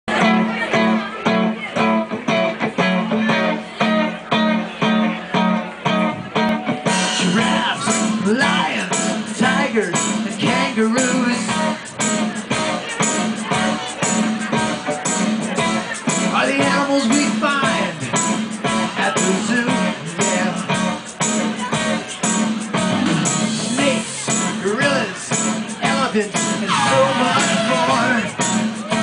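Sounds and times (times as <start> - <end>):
strummed guitar music over loudspeaker: 0.1 - 29.0
person singing: 6.4 - 29.0.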